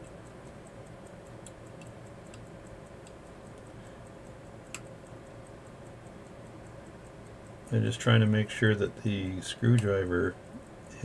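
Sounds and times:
mechanical watch ticking: 0.0s - 11.0s
sharp click: 4.6s - 5.6s.

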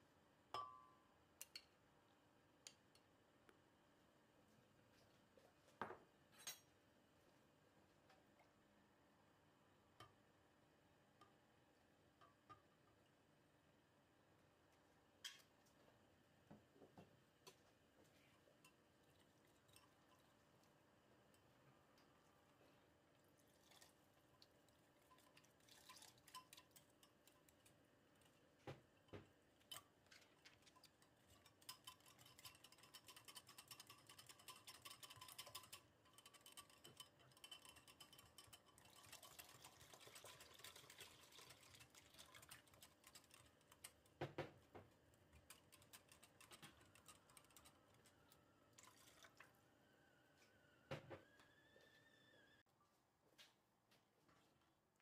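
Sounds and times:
whisk clicking against glass bowl: 29.6s - 44.1s, 45.3s - 48.1s.

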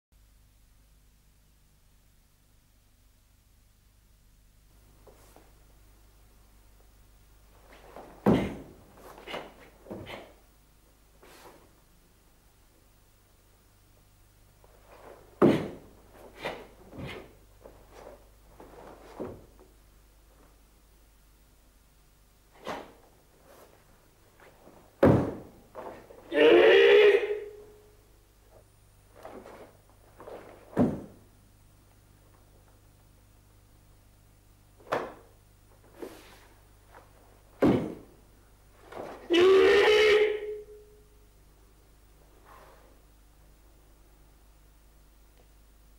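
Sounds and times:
uniform snaps and foot thuds: 7.6s - 10.4s, 14.7s - 20.6s, 22.5s - 26.3s, 28.5s - 32.9s, 34.8s - 38.2s, 38.8s - 39.3s
bare feet stamping on wooden floor: 25.0s - 26.1s, 30.2s - 31.2s, 37.6s - 38.1s
person shouting: 26.3s - 27.6s, 39.3s - 40.7s.

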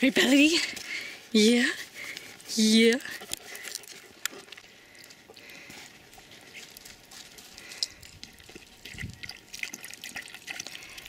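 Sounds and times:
animal lapping water: 3.0s - 11.0s.

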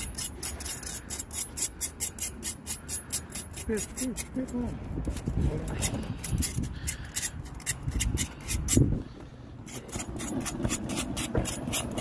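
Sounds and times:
knife scraping skin: 9.7s - 12.0s.

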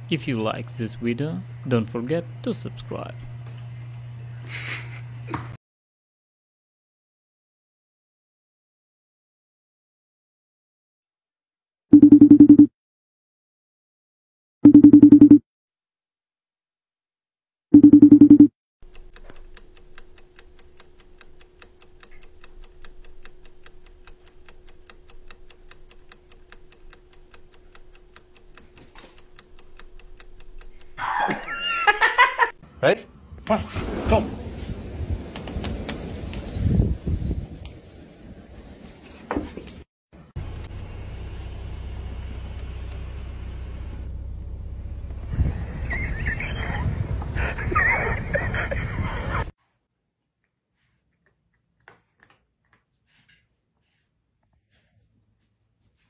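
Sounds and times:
rapid mechanical ticking: 18.8s - 32.4s.

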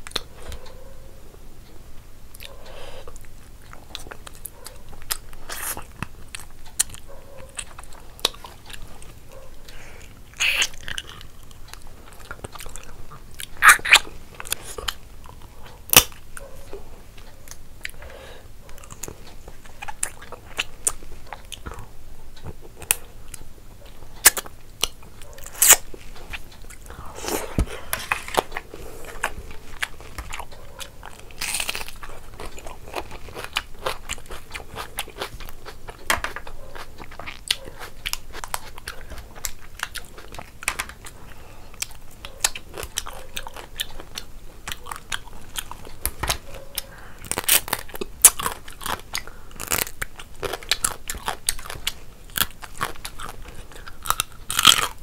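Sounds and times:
chewing and biting: 2.3s - 55.0s
wet mouth sounds: 5.0s - 8.8s, 9.7s - 11.3s, 12.1s - 16.1s, 24.2s - 36.0s
sharp crunches: 31.2s - 36.4s.

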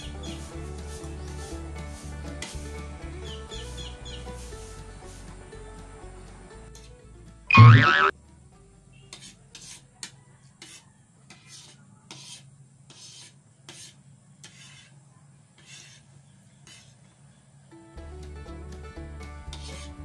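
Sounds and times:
loud wavering-pitch sound: 7.5s - 8.1s
cutlery scraping ceramic plate: 9.1s - 14.9s, 15.6s - 17.0s.

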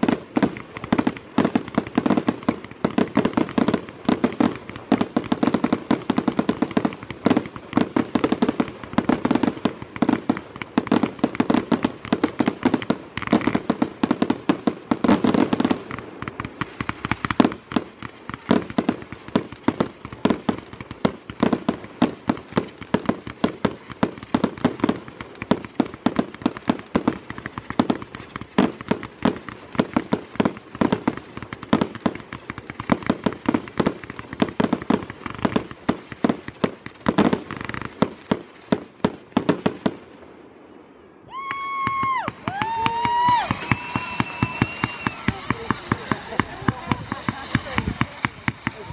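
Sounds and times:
fireworks bangs and crackles: 0.0s - 48.9s.

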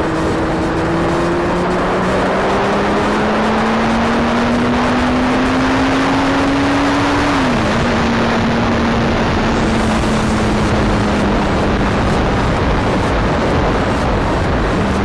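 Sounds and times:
motorcycle engine: 0.0s - 15.0s
wind rush on microphone: 0.0s - 15.0s.

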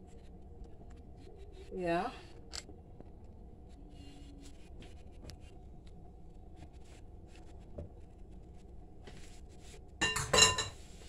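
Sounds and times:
kitchen room hum: 0.0s - 11.0s
utensil clattering on kitchenware: 10.0s - 10.8s.

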